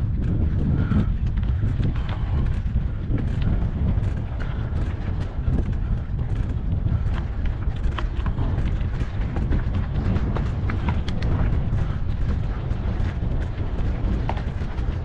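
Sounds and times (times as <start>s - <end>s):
bike tyres rattling on stones: 0.0s - 15.0s
wind buffeting microphone: 0.0s - 15.0s.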